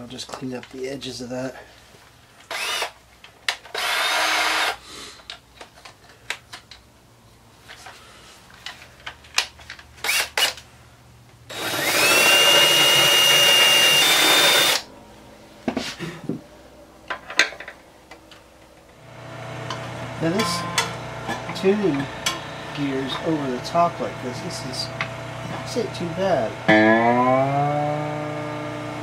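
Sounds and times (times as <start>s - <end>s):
cordless drill sanding: 2.5s - 2.9s, 11.5s - 14.9s.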